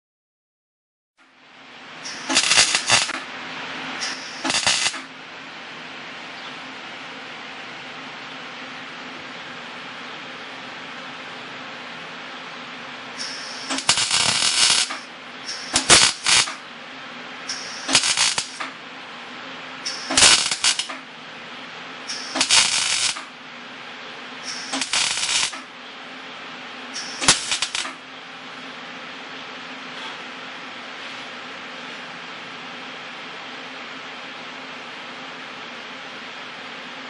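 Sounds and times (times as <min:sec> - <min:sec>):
welder hum: 0:01.3 - 0:34.0
welder crackling and sputtering: 0:02.0 - 0:05.2, 0:13.1 - 0:16.7, 0:17.4 - 0:18.8, 0:19.8 - 0:21.1, 0:22.0 - 0:23.4, 0:24.4 - 0:25.8, 0:27.0 - 0:28.0.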